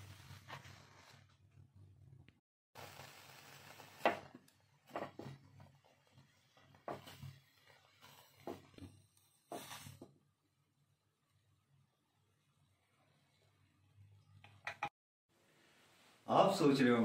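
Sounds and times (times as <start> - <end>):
gas burner hiss: 2.8 - 10.2.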